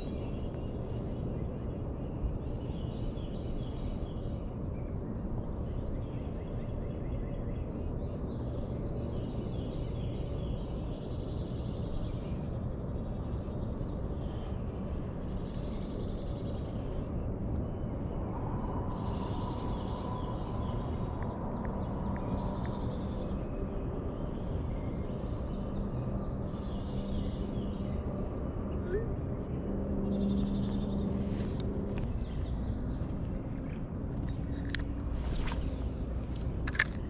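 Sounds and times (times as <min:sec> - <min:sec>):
birds calling: 0:00.0 - 0:37.0
insect high drone: 0:00.0 - 0:37.0
low rushing noise: 0:16.7 - 0:25.6.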